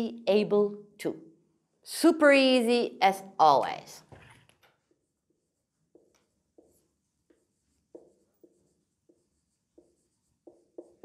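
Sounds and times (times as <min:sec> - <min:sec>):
marker squeaking on whiteboard: 0:04.1 - 0:11.0.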